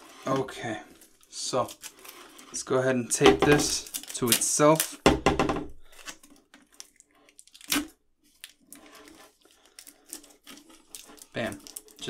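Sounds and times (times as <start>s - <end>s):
tape crinkling: 0.9s - 5.0s, 5.8s - 12.0s
tape ripping: 3.5s - 5.0s, 5.8s - 12.0s.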